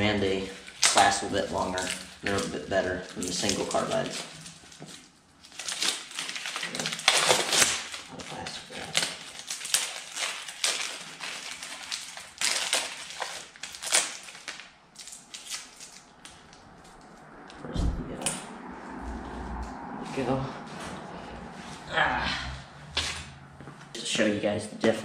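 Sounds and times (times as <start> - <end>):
wrapping crinkling and rustling: 0.0 - 17.2.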